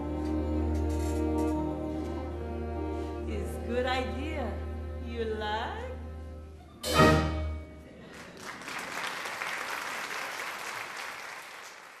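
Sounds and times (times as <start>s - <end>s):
audience applause: 8.0s - 12.0s.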